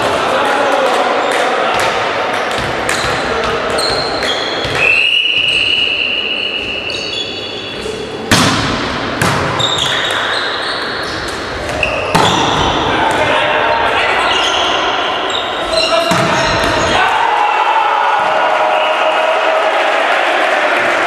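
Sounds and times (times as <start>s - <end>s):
sneakers squeaking on court: 2.6s - 8.0s, 9.5s - 12.9s, 13.7s - 17.0s
referee's whistle: 3.8s - 7.8s
volleyball pass thud: 8.3s - 9.8s, 11.7s - 13.3s.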